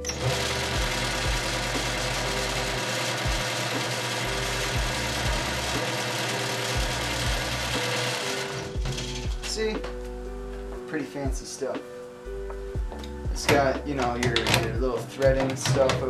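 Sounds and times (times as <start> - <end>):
metal lathe whirring: 0.0 - 9.2.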